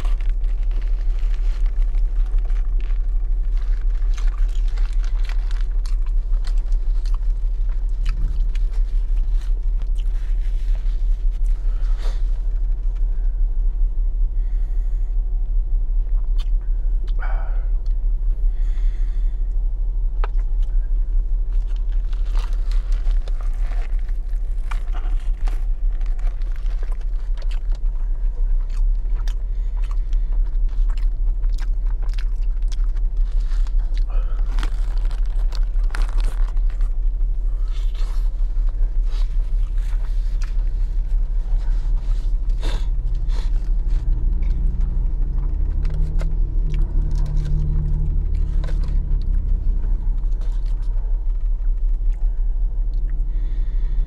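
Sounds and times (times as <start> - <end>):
chewing and crunching: 0.0 - 13.4, 16.1 - 19.2, 20.2 - 54.0
low hum in car cabin: 0.0 - 54.0
foil wrapper crinkling: 21.6 - 27.9, 30.6 - 37.0.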